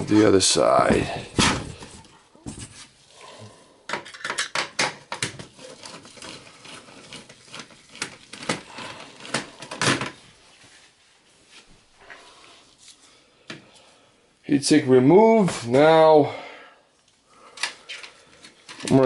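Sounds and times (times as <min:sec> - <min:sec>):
clicks and metallic knocks: 0:03.9 - 0:05.4.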